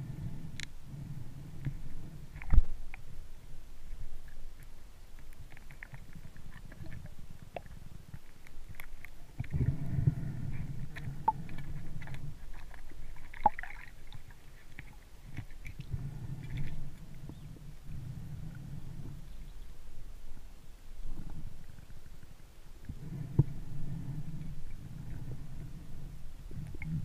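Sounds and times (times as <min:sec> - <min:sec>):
muffled underwater rumble: 0:00.0 - 0:27.0
small clicks and ticks: 0:00.5 - 0:00.8, 0:01.6 - 0:03.1, 0:03.8 - 0:17.4.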